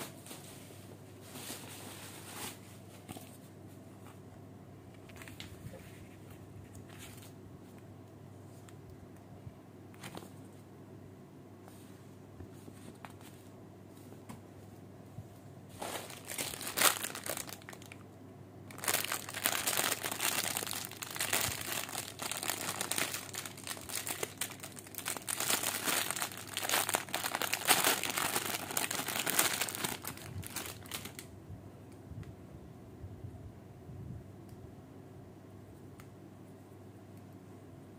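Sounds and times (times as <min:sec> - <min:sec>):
packaging crinkling: 0:15.8 - 0:18.0, 0:18.7 - 0:31.3.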